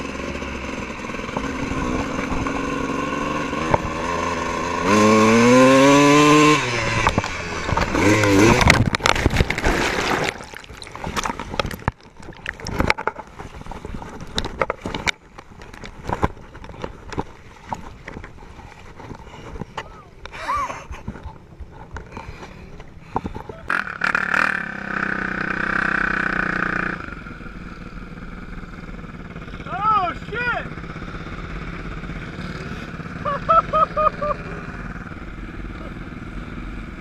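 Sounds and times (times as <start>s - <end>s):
dirt bike engine revving: 0.0s - 10.4s, 23.7s - 37.0s
water sloshing: 8.3s - 16.4s
loud splash into a puddle: 8.6s - 12.9s.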